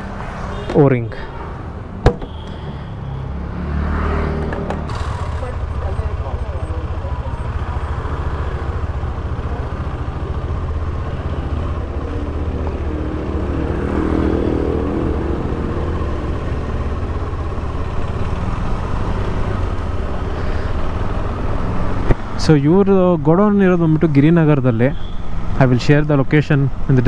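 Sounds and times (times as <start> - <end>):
motorcycle engine running: 4.4 - 12.4.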